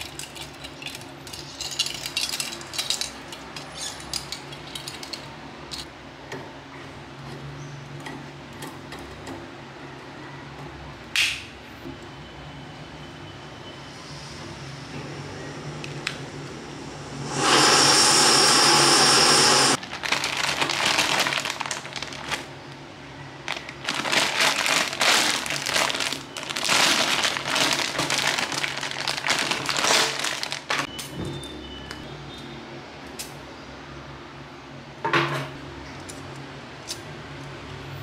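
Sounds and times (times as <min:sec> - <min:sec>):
stove burner hissing: 0:15.8 - 0:19.8
plastic packaging crinkling: 0:19.8 - 0:22.7, 0:23.4 - 0:30.9.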